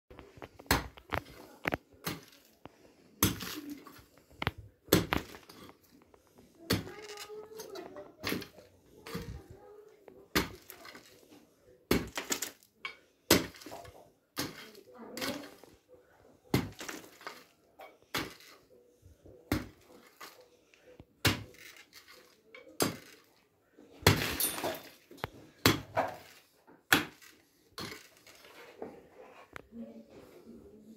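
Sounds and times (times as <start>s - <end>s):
pickaxe striking earth: 0.6s - 2.4s, 3.2s - 3.8s, 4.9s - 5.7s, 8.2s - 9.4s, 10.3s - 11.0s, 11.9s - 12.6s, 13.3s - 13.8s, 14.4s - 15.4s, 16.5s - 17.5s, 18.1s - 18.6s, 19.5s - 20.3s, 21.2s - 22.2s, 22.8s - 23.2s, 24.0s - 25.0s, 25.6s - 28.3s
dirt and stones tumbling: 3.2s - 9.5s.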